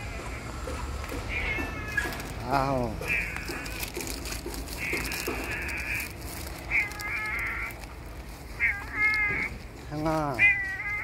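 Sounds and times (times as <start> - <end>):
cat meowing: 1.3 - 3.8, 4.8 - 7.8, 8.6 - 9.6, 10.2 - 11.0.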